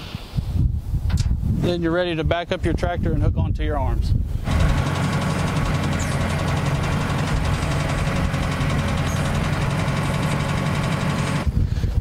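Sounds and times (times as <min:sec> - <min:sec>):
tractor engine running: 0:04.4 - 0:12.0.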